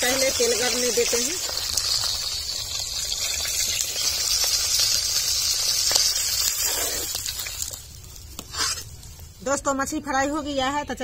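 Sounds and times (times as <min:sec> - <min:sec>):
fish frying in hot oil: 0:00.0 - 0:08.8.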